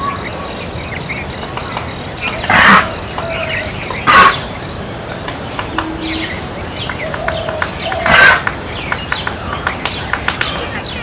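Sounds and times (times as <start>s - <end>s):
woodpecker tapping on wood: 6.8s - 10.7s.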